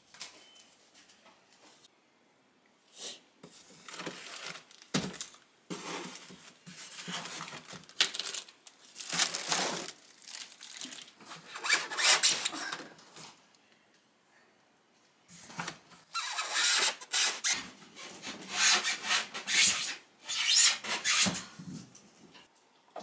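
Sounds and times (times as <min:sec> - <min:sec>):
plastic packaging crinkling: 0:03.8 - 0:12.6.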